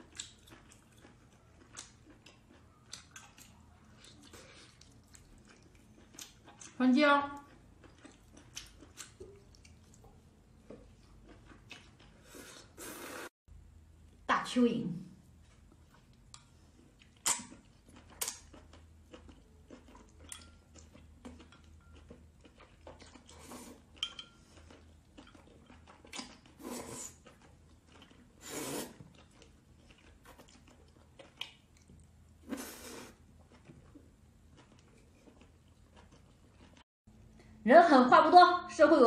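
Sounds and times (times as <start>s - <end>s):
wet slurping and sucking: 12.2s - 13.3s, 26.6s - 27.2s, 28.4s - 29.1s, 32.4s - 33.2s.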